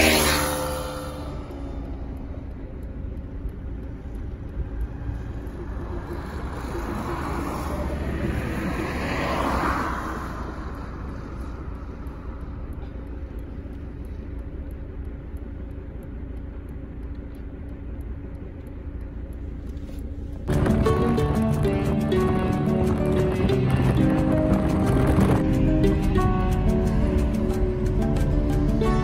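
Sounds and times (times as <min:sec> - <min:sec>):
road vehicle passing: 0:00.0 - 0:29.0
wind on microphone: 0:20.5 - 0:28.8.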